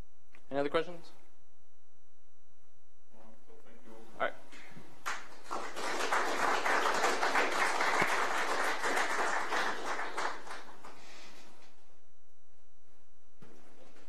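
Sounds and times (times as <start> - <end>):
audience applauding: 5.0 - 11.1.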